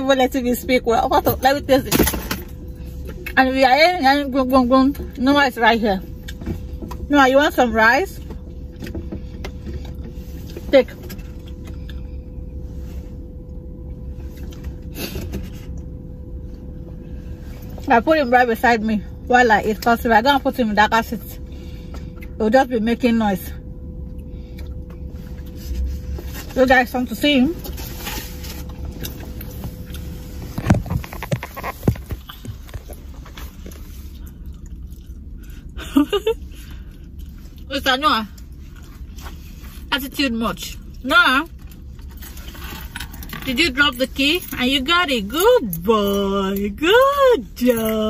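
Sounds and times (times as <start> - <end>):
car interior rumble: 0.0 - 48.0.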